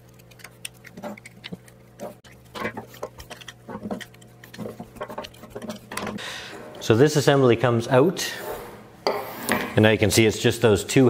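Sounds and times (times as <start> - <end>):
metal bar scraping and knocking: 1.0 - 6.8.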